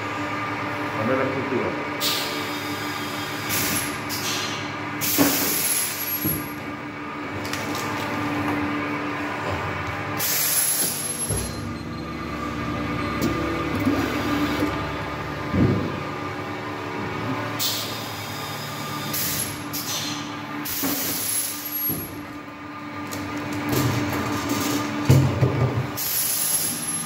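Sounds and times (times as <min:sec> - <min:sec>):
packaging machine humming: 0:01.9 - 0:27.0
machine thump: 0:06.2 - 0:06.6, 0:10.8 - 0:11.6, 0:15.4 - 0:16.0, 0:21.8 - 0:22.2, 0:25.0 - 0:25.9.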